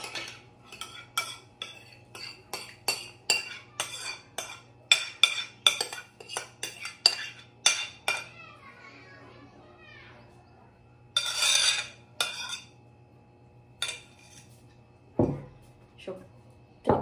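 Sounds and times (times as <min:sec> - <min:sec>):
spoon clinking against bowl: 0:00.0 - 0:08.4, 0:11.1 - 0:12.8, 0:13.8 - 0:14.5.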